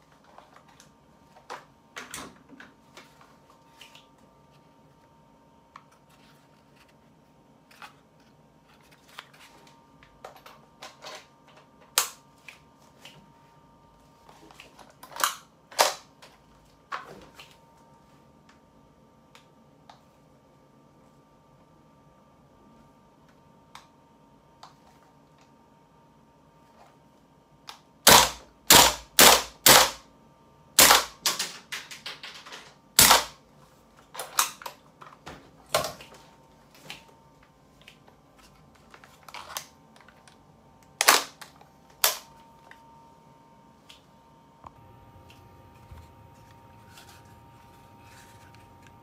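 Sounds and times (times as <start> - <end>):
airsoft rifle shots: 28.1 - 30.0, 30.8 - 31.4, 33.0 - 33.4.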